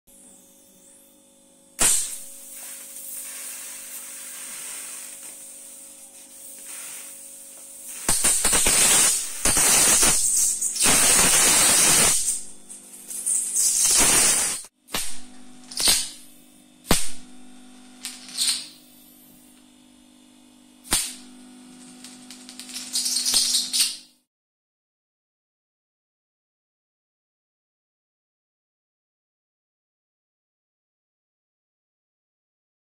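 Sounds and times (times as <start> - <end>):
steady low hum: 0.1 - 23.0
electrical discharge hissing: 1.8 - 17.3, 20.8 - 24.0
sparks crackling: 1.8 - 19.5, 20.8 - 24.1.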